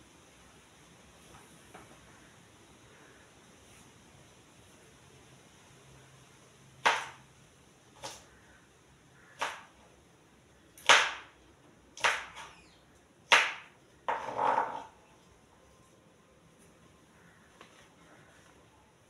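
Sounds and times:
knife chopping on plastic board: 6.8s - 7.2s, 9.4s - 9.8s, 10.8s - 11.3s, 12.0s - 12.5s, 13.3s - 14.9s.

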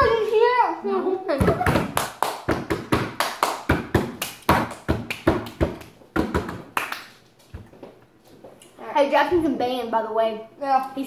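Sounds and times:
sharp hand slaps: 1.6s - 7.2s.

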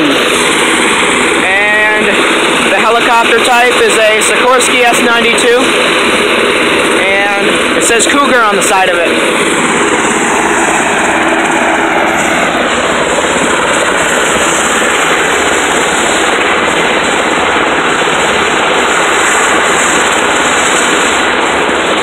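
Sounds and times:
helicopter turbine noise: 0.0s - 22.0s.

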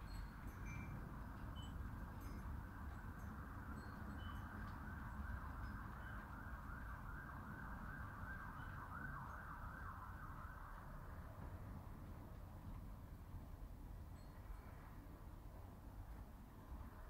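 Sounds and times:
faint yelping siren: 4.9s - 11.2s.

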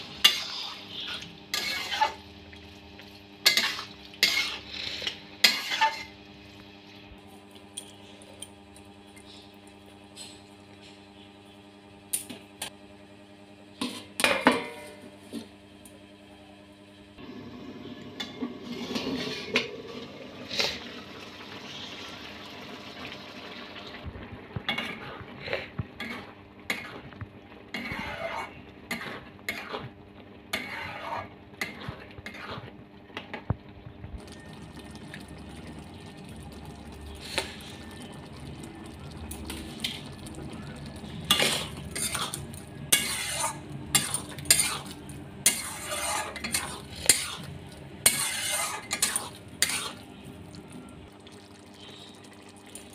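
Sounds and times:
metal spatula scraping a pan: 0.0s - 2.2s, 3.4s - 6.2s, 18.2s - 19.7s, 27.7s - 29.9s, 30.5s - 32.7s, 41.3s - 50.2s.

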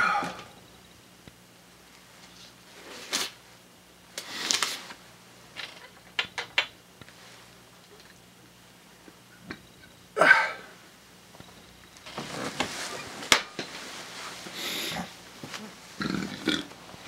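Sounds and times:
clothing rustling: 12.0s - 16.0s.

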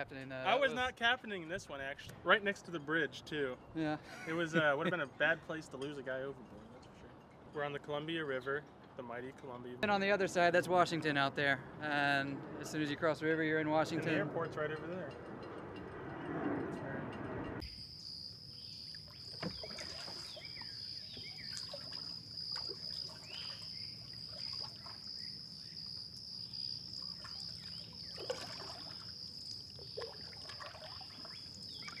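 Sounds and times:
insects droning: 17.6s - 32.0s
birds chirping: 17.7s - 32.0s
water splashes and drips: 18.9s - 26.2s, 26.8s - 32.0s.

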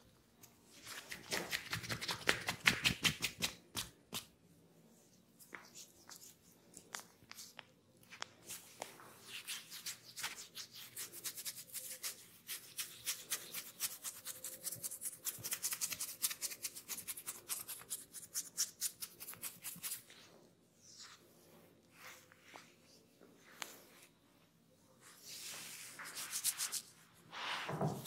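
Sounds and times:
fingers rubbing hair: 25.2s - 27.0s.

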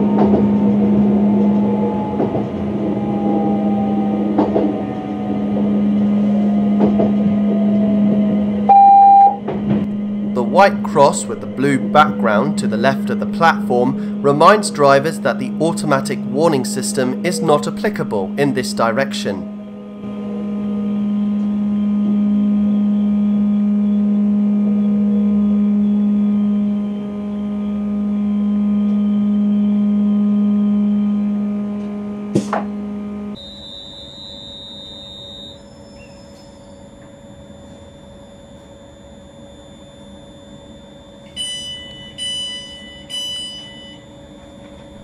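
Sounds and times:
electric train hum: 0.0s - 45.0s
high-pitched whine: 0.0s - 45.0s
short electronic beeps: 8.7s - 9.4s.

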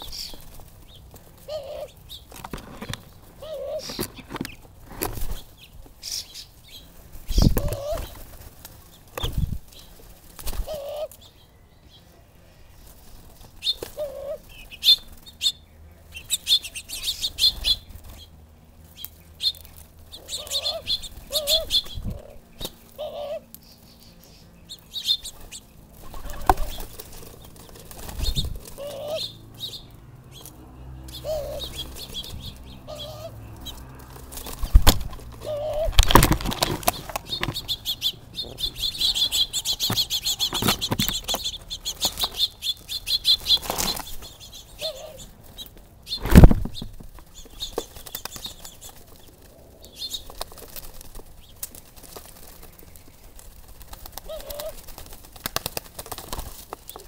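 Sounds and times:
small birds chirping: 0.0s - 57.0s
bird wingbeats: 6.8s - 11.2s, 25.0s - 57.0s.

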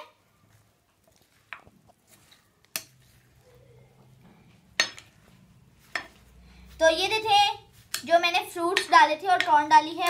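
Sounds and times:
spoon stirring food in glass bowl: 1.1s - 3.4s.

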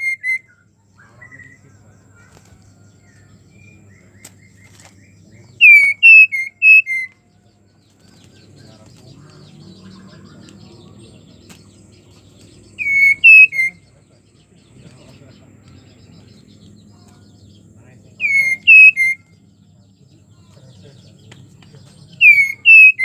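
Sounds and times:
bird whistling call: 0.0s - 1.6s, 5.6s - 7.2s, 12.8s - 13.8s, 18.2s - 19.3s, 22.2s - 23.0s.

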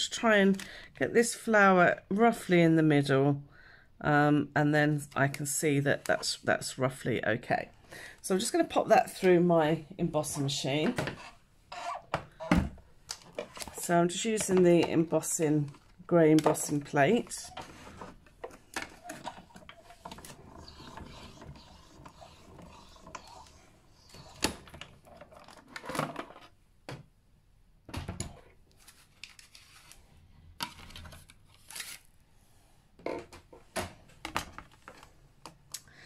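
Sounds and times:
embossing machine rubbing and clicking: 17.4s - 25.0s.

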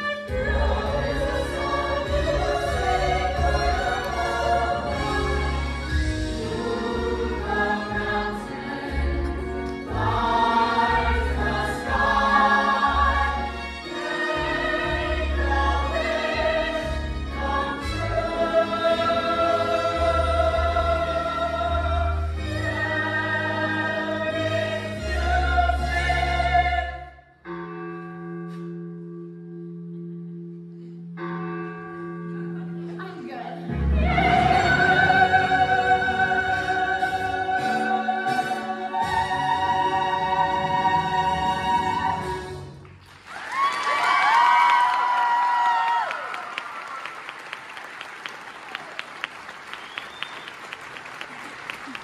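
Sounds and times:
musical accompaniment with bass: 0.0s - 43.2s
cast singing as a choir: 0.2s - 27.1s, 33.9s - 42.5s.

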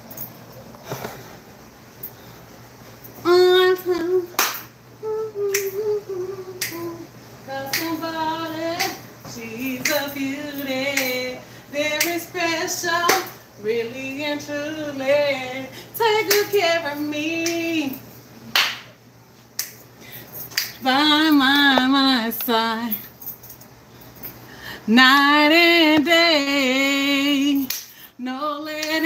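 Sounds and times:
woman singing unaccompanied: 3.2s - 18.1s, 20.6s - 23.1s, 24.8s - 29.0s.

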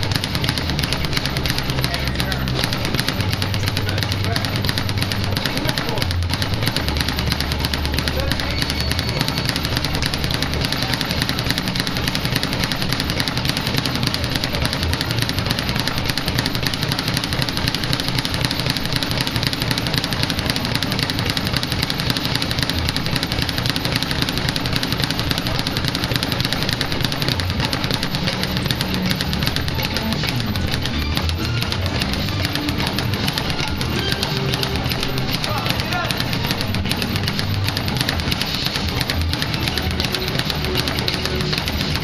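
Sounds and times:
speed bag rapid impacts: 0.0s - 42.0s.

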